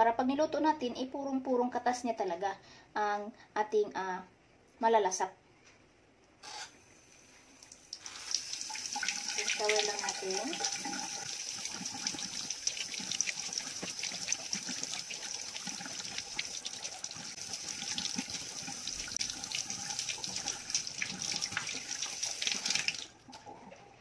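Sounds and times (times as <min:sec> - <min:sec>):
kitchen tap running: 0:07.0 - 0:24.0
water splashing into sink: 0:07.6 - 0:23.8.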